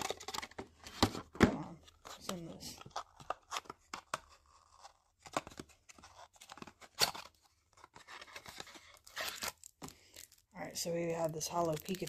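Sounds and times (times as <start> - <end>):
plastic sleeve rustling: 5.9 - 12.0.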